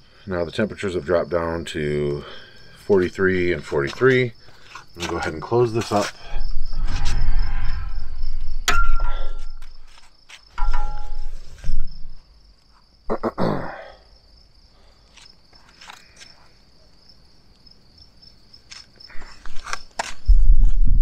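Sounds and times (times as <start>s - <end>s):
crickets chirping: 0.0s - 21.0s
metallic clinks and knocks: 8.6s - 9.8s, 10.5s - 11.6s.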